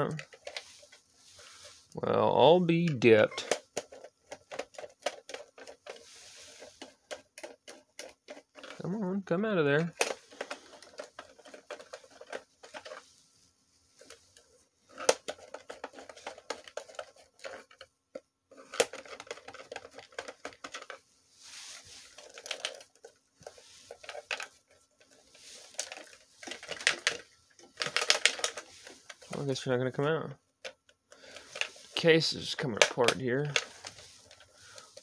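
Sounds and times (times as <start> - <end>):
clicks taps and scrapes: 0.0 - 2.0, 2.9 - 8.8, 9.8 - 13.2, 14.0 - 29.6, 30.6 - 35.0.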